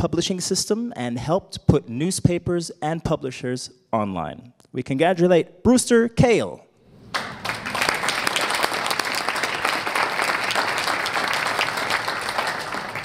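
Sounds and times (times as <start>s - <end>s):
audience applauding: 7.0s - 13.0s.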